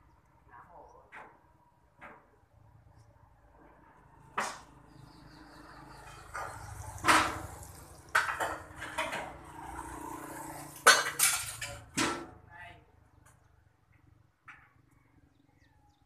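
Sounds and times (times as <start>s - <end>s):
steel pieces clanking on metal: 10.9s - 11.9s.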